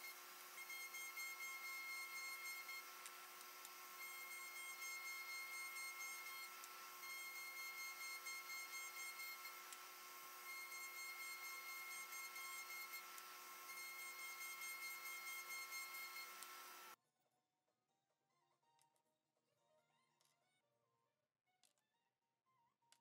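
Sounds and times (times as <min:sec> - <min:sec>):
router sanding drum whine: 0:00.0 - 0:17.0.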